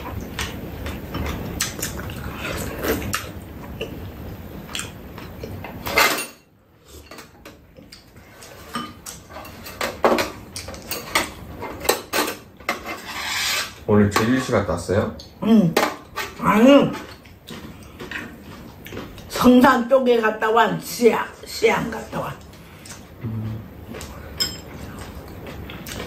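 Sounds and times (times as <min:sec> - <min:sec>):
utensils clinking against bowls: 0:05.2 - 0:14.6, 0:24.0 - 0:26.0.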